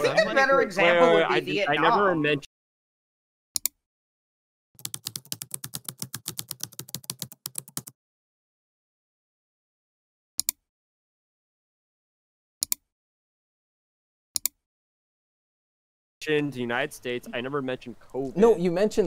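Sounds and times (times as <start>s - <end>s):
mouse double click: 3.6s - 3.8s, 12.6s - 12.8s, 14.4s - 14.6s
rapid typing on keyboard: 4.8s - 7.9s.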